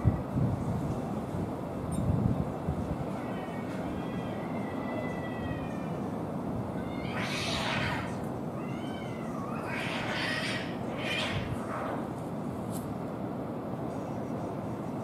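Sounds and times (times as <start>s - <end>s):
cat yowling: 3.1s - 6.1s, 6.7s - 11.9s
cats hissing: 6.7s - 12.1s.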